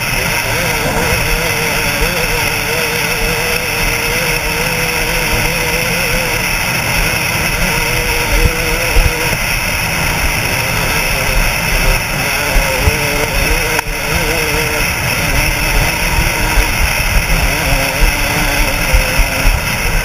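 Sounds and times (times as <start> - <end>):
dirt bike engine running: 0.0 - 20.0
wind noise on microphone: 0.0 - 20.0
sharp knocks: 0.7 - 1.4.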